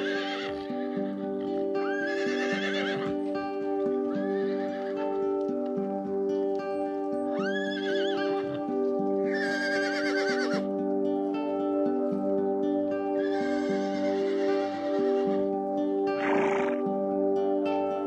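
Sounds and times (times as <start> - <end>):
horse whinnying: 0.0 - 3.2, 4.2 - 5.0, 7.4 - 8.6, 9.3 - 10.7, 13.2 - 15.5, 16.2 - 16.8
background music with held notes: 0.0 - 18.0.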